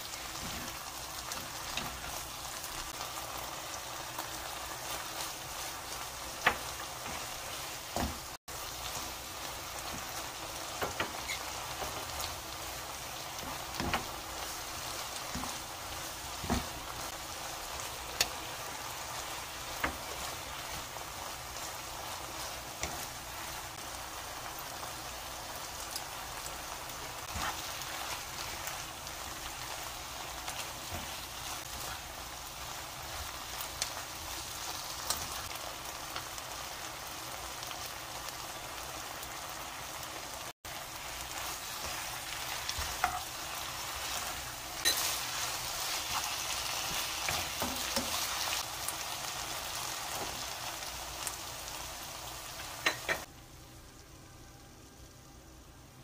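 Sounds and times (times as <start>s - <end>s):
food sizzling in a wok: 0.0s - 56.0s
utensils tapping and scraping pan: 0.2s - 2.9s, 6.3s - 8.4s, 9.8s - 12.1s, 13.4s - 17.1s, 19.7s - 20.9s, 41.4s - 48.6s, 52.8s - 53.3s.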